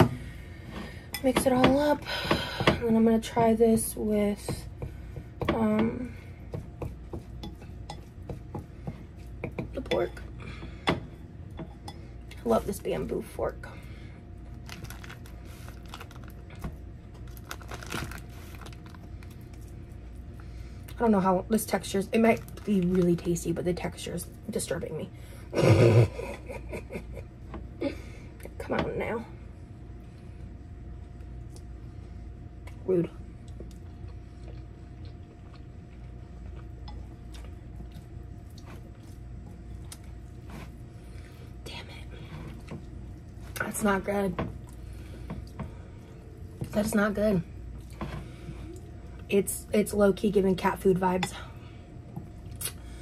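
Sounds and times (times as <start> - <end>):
low steady hum: 0.0 - 53.0
person chewing food: 33.4 - 41.5.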